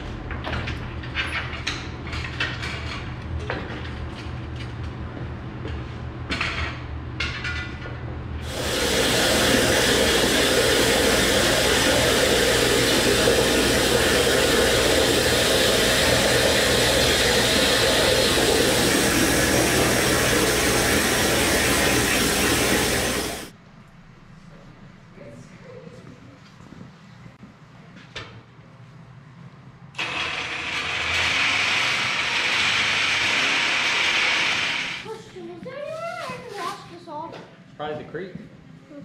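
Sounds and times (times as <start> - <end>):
plasma torch cutting metal: 8.4 - 23.5, 30.0 - 35.1.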